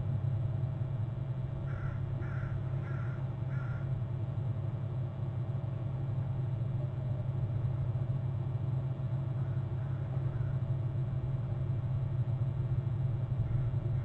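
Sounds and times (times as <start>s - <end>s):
steady low hum: 0.0s - 14.0s
bird cawing: 1.6s - 4.0s, 9.4s - 10.8s, 13.4s - 14.0s.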